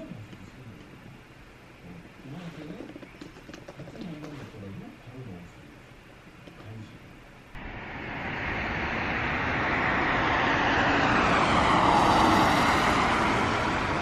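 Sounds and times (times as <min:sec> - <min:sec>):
jet airliner flying overhead: 0:07.6 - 0:14.0.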